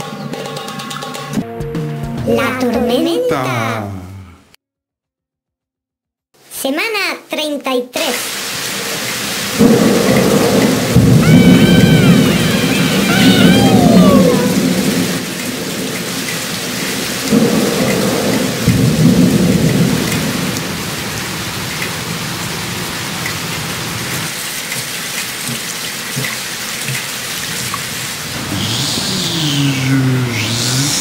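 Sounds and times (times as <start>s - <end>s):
heavy rain: 8.0s - 31.0s
thunder rumbling: 9.2s - 24.4s.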